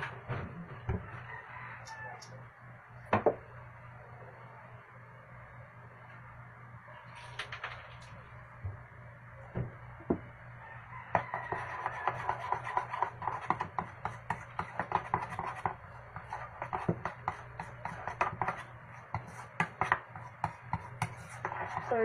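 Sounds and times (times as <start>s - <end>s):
utensil stirring batter in bowl: 11.2s - 22.0s.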